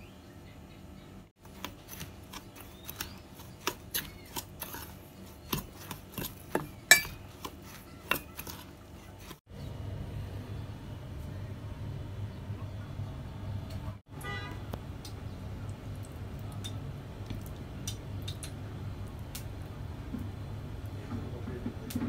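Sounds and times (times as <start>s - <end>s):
metal spoon scraping steel bowl: 1.5s - 9.4s.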